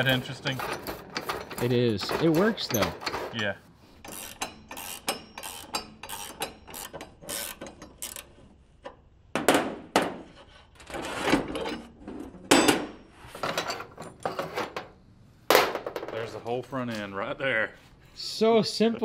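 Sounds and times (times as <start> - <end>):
metal scraping: 0.0 - 8.4
ratcheting wrench clicking: 4.0 - 8.3.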